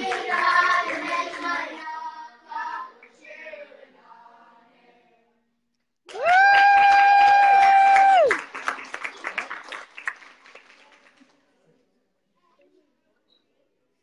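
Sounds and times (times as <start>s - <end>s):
boys' choir singing: 0.0s - 5.1s.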